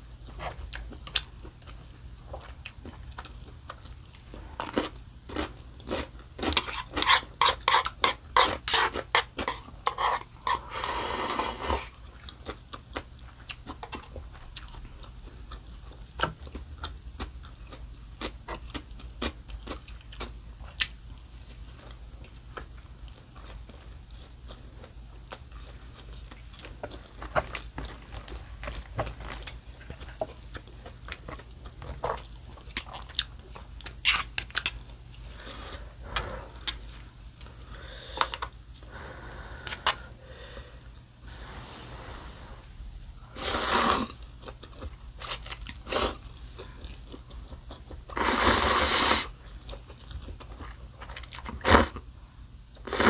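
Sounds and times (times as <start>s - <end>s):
mouth chewing food: 0.2s - 39.0s, 43.4s - 52.0s
slurping noodles: 10.0s - 11.9s, 43.3s - 44.2s, 48.2s - 49.3s.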